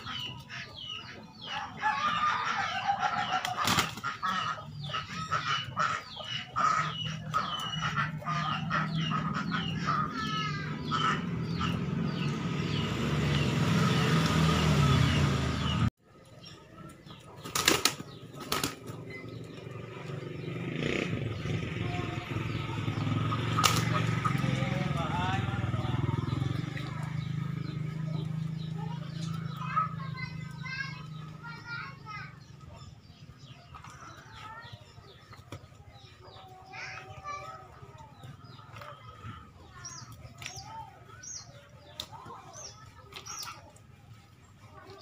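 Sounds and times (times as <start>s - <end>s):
wings flapping: 3.0s - 4.6s, 17.4s - 19.2s, 23.2s - 24.6s
low engine hum: 6.9s - 17.2s.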